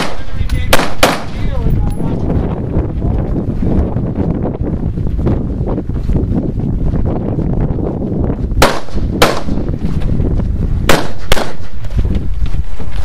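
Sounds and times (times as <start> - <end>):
gunshots: 0.0 - 1.6, 8.6 - 9.7, 10.9 - 11.8
low wind rumble: 0.0 - 13.0.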